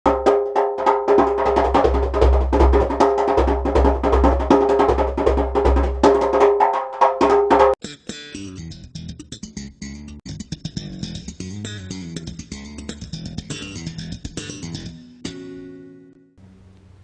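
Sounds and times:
djembe hand drum: 0.1 - 7.8
guitar and bass music: 7.5 - 16.8.

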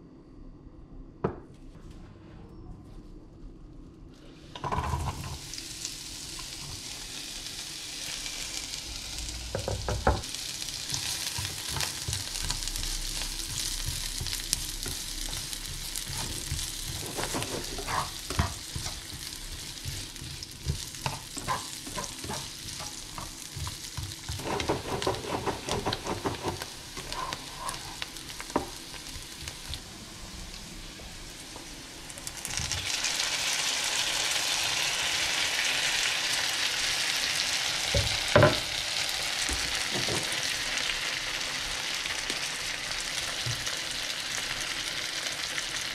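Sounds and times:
onion sizzling in oil: 4.4 - 45.9
spatula scraping and tapping pan: 13.5 - 28.8.

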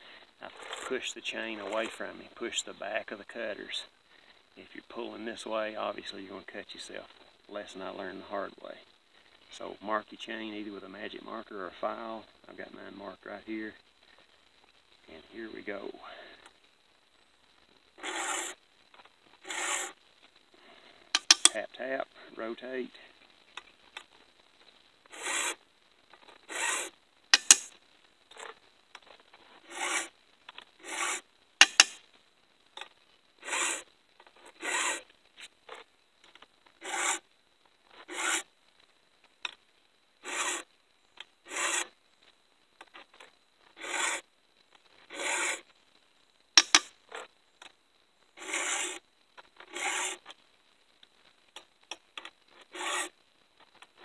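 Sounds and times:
file rasping on chainsaw chain: 18.0 - 18.6, 19.4 - 19.9, 21.2 - 21.6, 25.2 - 25.6, 26.5 - 27.7, 29.7 - 30.1, 30.8 - 32.0, 33.4 - 33.8, 34.6 - 35.0, 36.8 - 37.2, 38.1 - 38.4, 40.2 - 40.6, 41.5 - 41.9, 43.8 - 44.2, 45.1 - 45.6, 46.6 - 46.9, 48.4 - 49.0, 49.7 - 50.2, 52.7 - 53.1
sharp taps: 21.2 - 21.5, 27.4 - 27.7, 31.6 - 32.0, 46.6 - 46.9.

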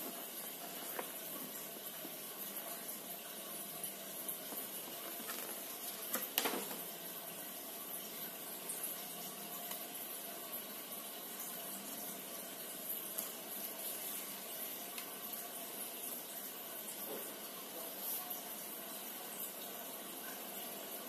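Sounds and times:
paper rustling: 4.6 - 6.8.

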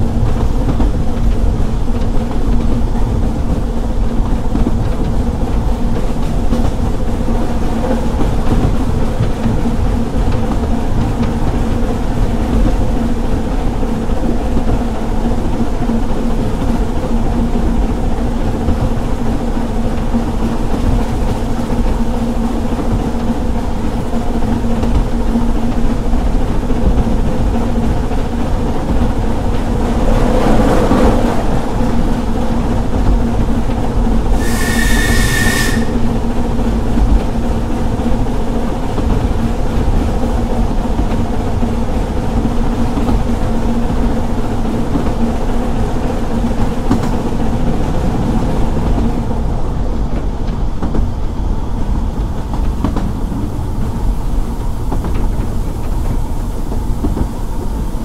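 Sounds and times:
train wheels rumbling on rail: 0.0 - 58.0
steam whistle blast: 34.4 - 36.2.

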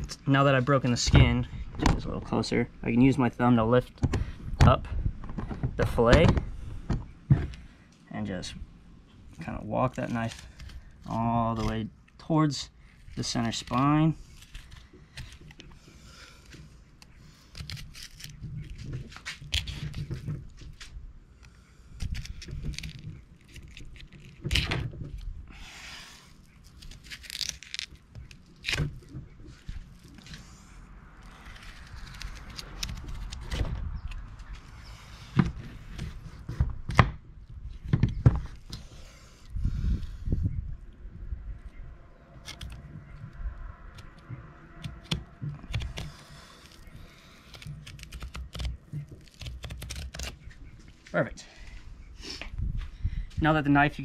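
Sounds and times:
knife cutting and scraping fish: 13.0 - 20.3, 25.6 - 36.6, 44.8 - 50.5.

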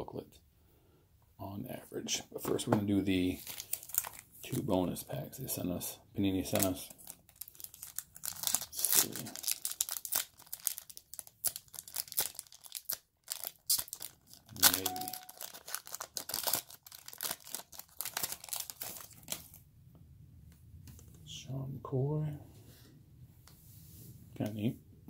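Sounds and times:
wrapper tearing and crinkling: 3.4 - 4.3, 6.5 - 19.6.

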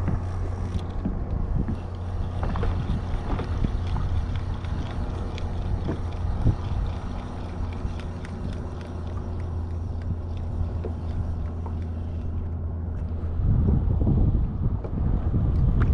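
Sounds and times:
wind buffeting microphone: 0.0 - 15.9
water splashing: 1.6 - 12.5.

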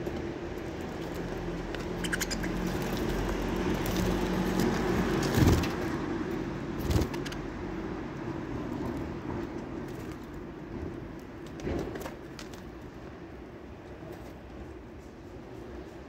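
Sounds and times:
budgerigar chirps and clicks: 2.0 - 2.6.

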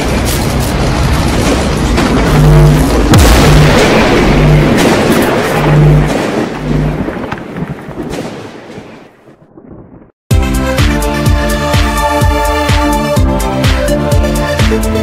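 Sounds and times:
background music: 10.3 - 15.0.

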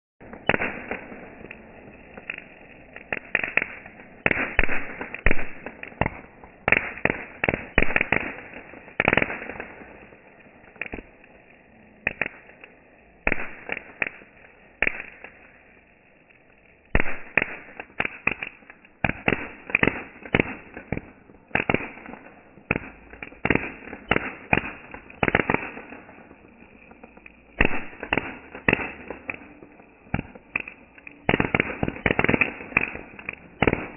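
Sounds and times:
firework bangs and crackling pops: 0.2 - 33.9.

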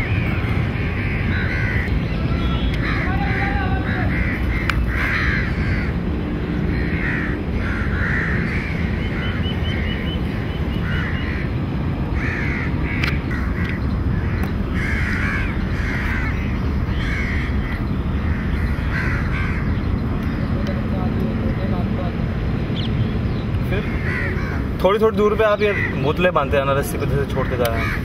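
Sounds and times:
crows cawing: 0.0 - 19.8, 23.8 - 26.6, 27.2 - 28.0
steady low rumble: 0.0 - 28.0
bird chirping: 8.8 - 11.4, 22.7 - 24.1.

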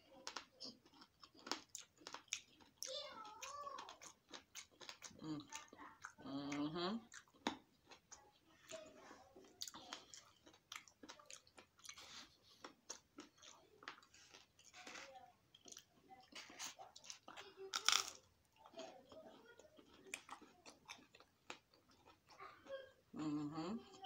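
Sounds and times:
chewing with wet mouth clicks: 0.1 - 8.8, 9.4 - 14.8, 15.5 - 17.5, 18.5 - 22.4.

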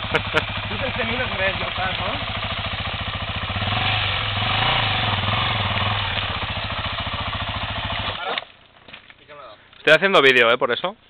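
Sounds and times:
motorcycle engine idling: 0.0 - 8.2.

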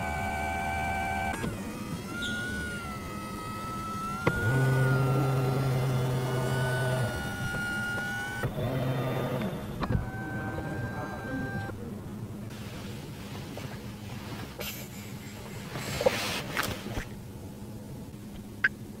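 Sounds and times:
electric seat motor humming: 0.0 - 12.0.

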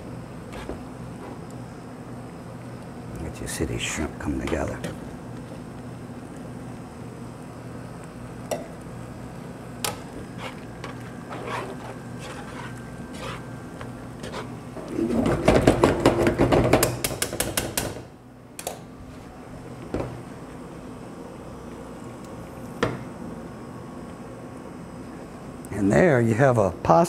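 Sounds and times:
steady low hum: 0.0 - 27.0
metal scraping on metal: 10.4 - 13.4.

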